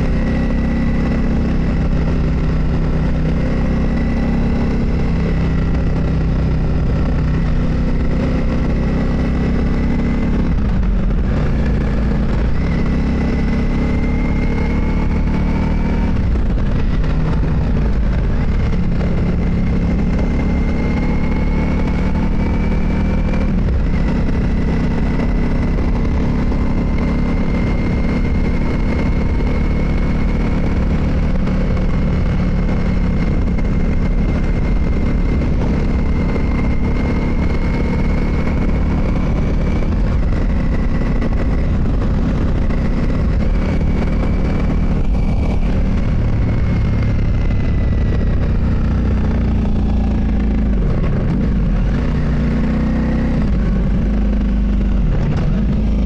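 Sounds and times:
motorcycle engine running: 0.0 - 56.0
road noise: 0.0 - 56.0.

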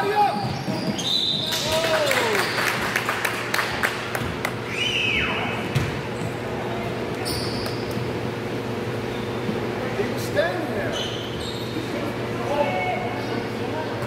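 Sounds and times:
sneaker squeak: 0.0 - 1.6, 4.7 - 8.1, 9.0 - 9.7, 10.7 - 14.0
steady hum: 1.3 - 14.0
basketball bouncing on hardwood: 5.6 - 6.4.

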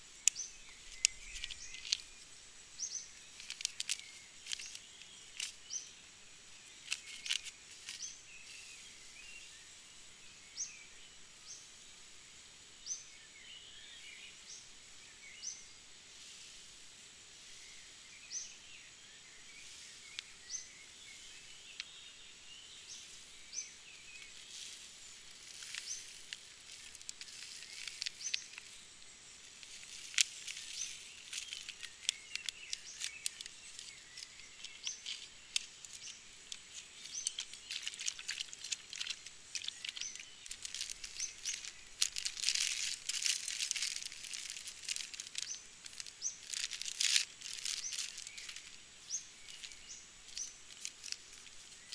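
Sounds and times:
plastic wrappers crinkling: 0.0 - 8.1, 24.0 - 51.9
small bird chirping: 0.0 - 11.9, 12.8 - 15.8, 17.5 - 51.9.

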